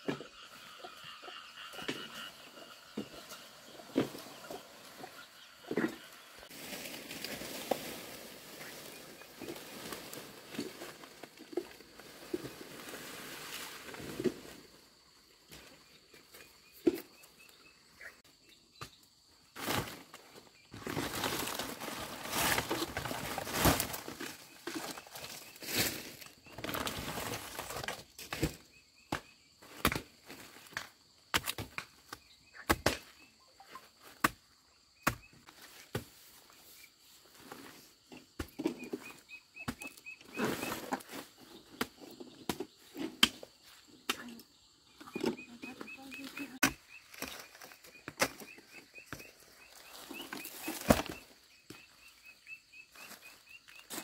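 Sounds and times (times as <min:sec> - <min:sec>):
rustling of grass and leaves: 0:01.9 - 0:18.3, 0:19.4 - 0:28.7, 0:34.9 - 0:54.0.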